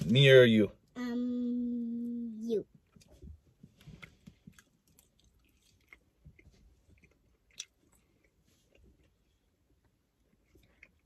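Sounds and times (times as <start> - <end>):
chewing dried snack: 4.0 - 9.2.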